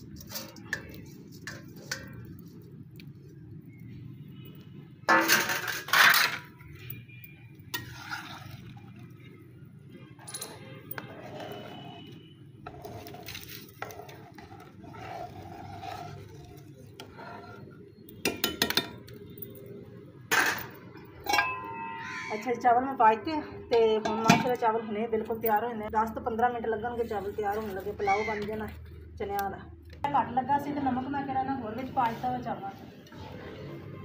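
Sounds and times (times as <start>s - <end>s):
ladle scraping metal pot: 0.0s - 2.7s, 5.1s - 6.5s, 7.7s - 9.2s, 11.0s - 18.8s
metal pot lid clanging: 5.1s - 6.5s, 20.3s - 22.2s, 23.8s - 24.7s.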